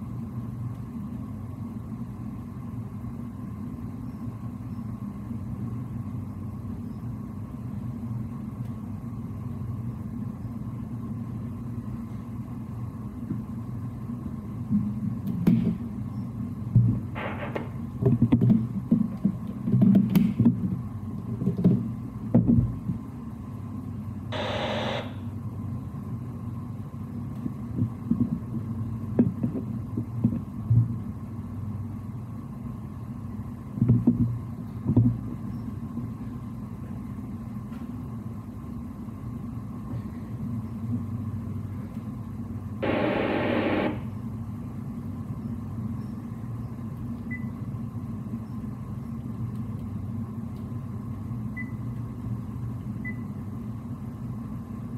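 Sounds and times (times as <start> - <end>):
low machinery hum: 0.0 - 54.9
bursts of hiss: 24.3 - 25.3, 42.8 - 44.1.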